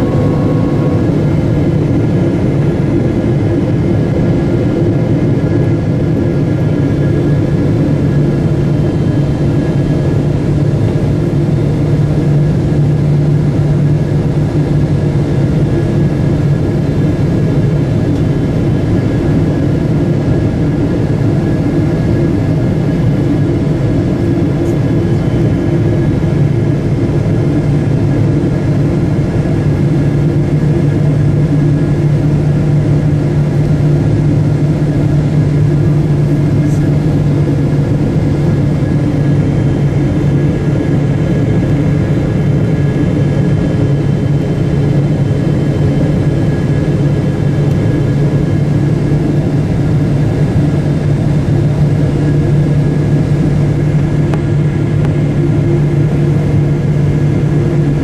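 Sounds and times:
faint steady high tones: 0.0s - 3.0s
rushing airflow: 0.0s - 7.4s
jet engine drone: 0.0s - 58.0s
strong low hum: 0.0s - 58.0s.

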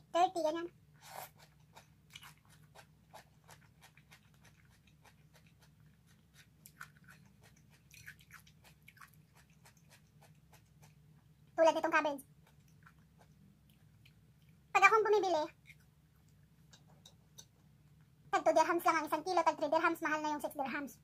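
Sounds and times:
low room hum: 0.0s - 21.0s
person chewing: 1.0s - 11.1s, 12.3s - 14.6s, 15.6s - 17.7s.

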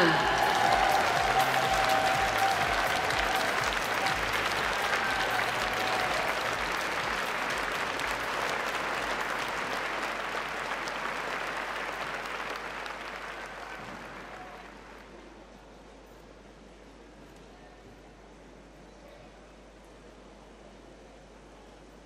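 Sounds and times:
crowd applauding: 0.0s - 15.3s.

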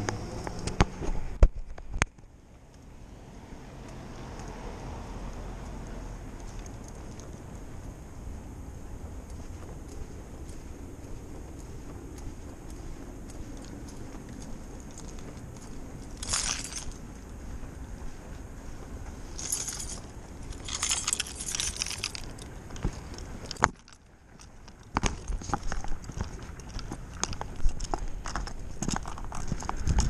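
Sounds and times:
low outdoor rumble: 0.0s - 30.0s
small metal objects jingling: 14.9s - 17.2s, 19.2s - 22.5s.

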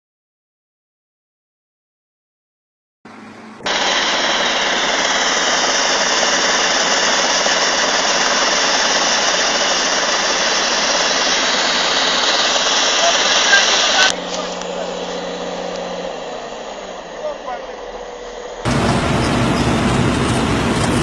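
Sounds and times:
excavator diesel engine running: 3.1s - 21.0s
constant low hum: 7.1s - 21.0s.

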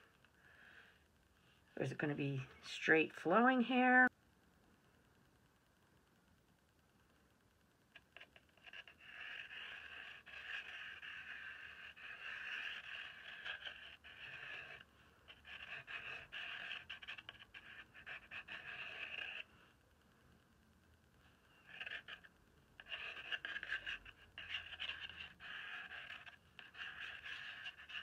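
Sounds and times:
charcoal pencil scratching paper: 8.0s - 19.5s, 21.3s - 28.0s.

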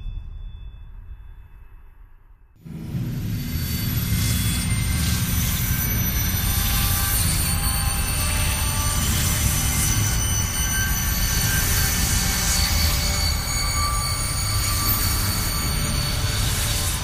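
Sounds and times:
low rumble: 0.0s - 7.5s
shimmering high held tones: 0.0s - 17.0s.

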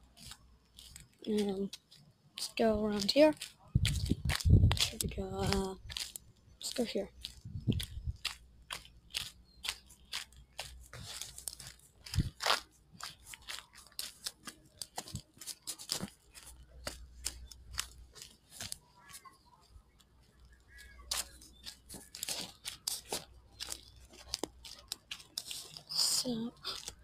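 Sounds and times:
footsteps crunching on gravel: 0.2s - 19.3s.

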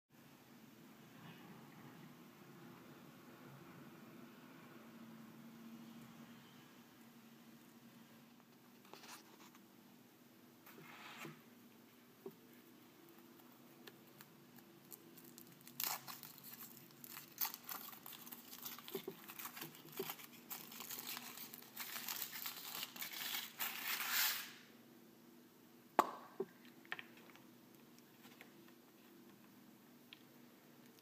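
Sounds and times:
foil wrapper crinkling: 14.0s - 24.5s.

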